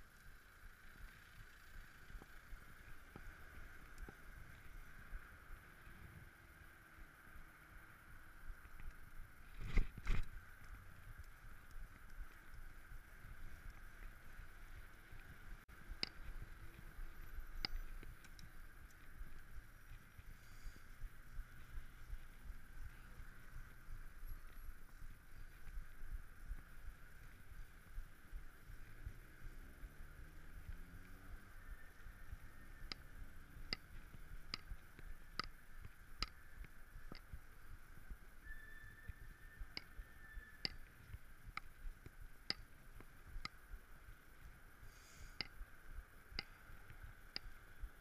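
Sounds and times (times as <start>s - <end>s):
sharp ticks: 0.0s - 5.9s, 8.4s - 38.5s, 39.1s - 48.0s.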